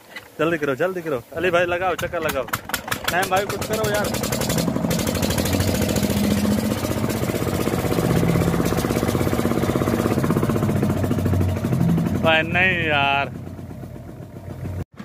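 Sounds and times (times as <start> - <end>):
diesel engine running: 2.0 - 15.0.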